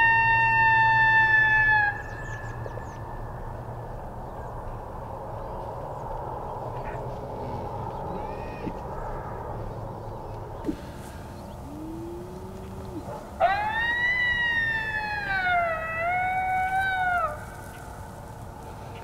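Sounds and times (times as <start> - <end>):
electronic coyote howl: 0.0 - 2.5, 11.6 - 17.8
faint bird calls: 1.2 - 3.7, 5.4 - 19.0.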